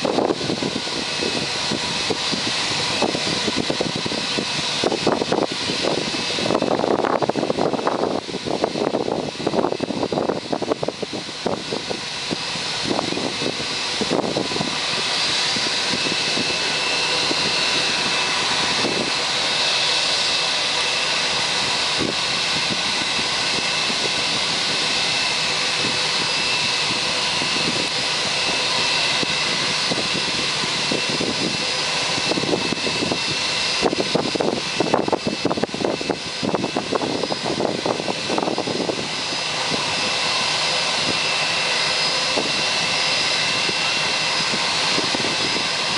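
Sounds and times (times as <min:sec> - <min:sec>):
jet engine whine: 0:00.0 - 0:45.9
wind buffeting microphone: 0:00.0 - 0:45.9.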